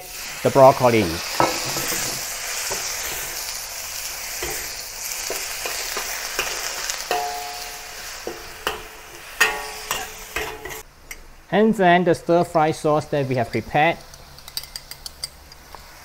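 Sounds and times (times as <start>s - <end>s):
vegetables sizzling in hot oil: 0.0s - 11.4s, 13.6s - 16.0s
metal spatula scraping a wok: 1.2s - 10.9s.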